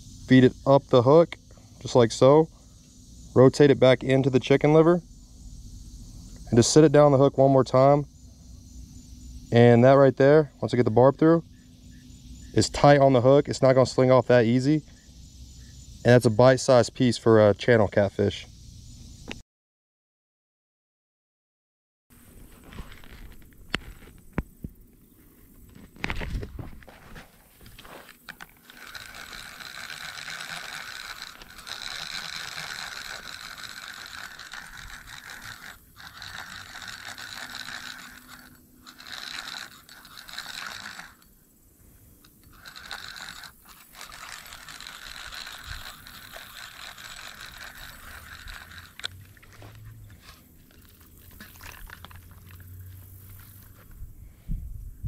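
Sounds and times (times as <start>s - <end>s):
fishing reel gears whirring: 5.7s - 8.0s, 8.8s - 16.8s, 27.1s - 41.6s, 42.2s - 53.7s.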